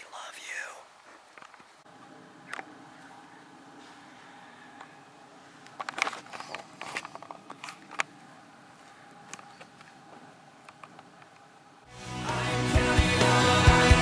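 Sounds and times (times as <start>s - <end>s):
low background hiss: 0.0s - 3.8s.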